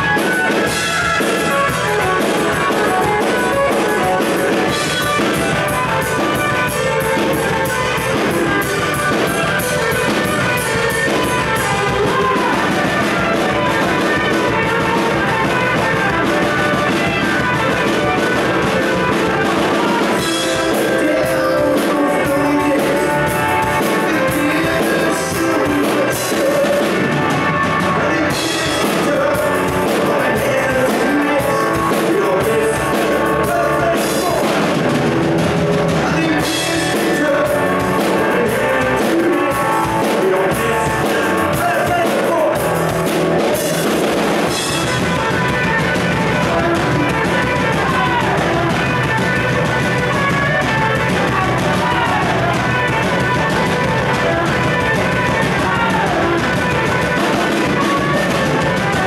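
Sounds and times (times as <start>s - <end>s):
man singing: 0.0s - 35.1s, 35.8s - 59.0s
drums: 0.0s - 59.0s
electric bass: 0.0s - 59.0s
electric guitar: 0.0s - 59.0s.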